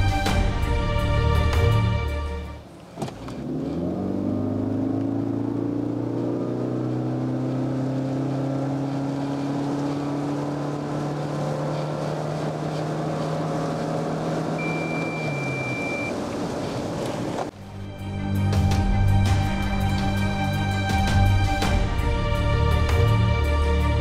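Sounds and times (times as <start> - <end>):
car engine accelerating: 1.7 - 17.6
short high beep: 14.6 - 16.1.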